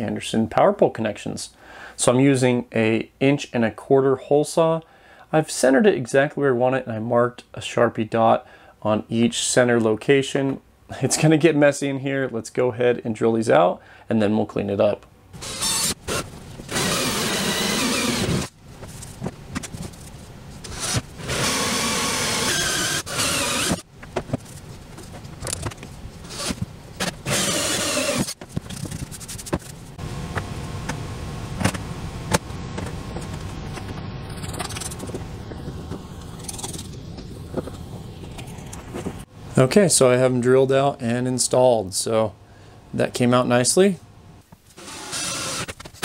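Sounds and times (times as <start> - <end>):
cordless drill cutting plastic: 15.4 - 18.5, 20.6 - 23.9, 26.2 - 28.4, 44.8 - 45.8.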